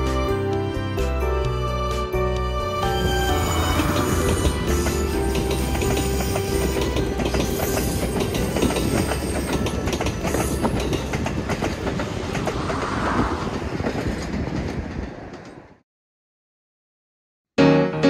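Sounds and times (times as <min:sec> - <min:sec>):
train wheels clicking on rails: 0:03.0 - 0:15.8.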